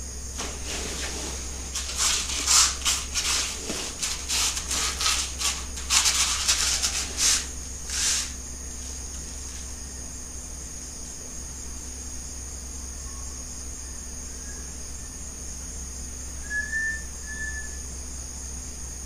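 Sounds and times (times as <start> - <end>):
crickets chirping: 0.0 - 19.0
cloth hammock rustling: 0.3 - 9.7.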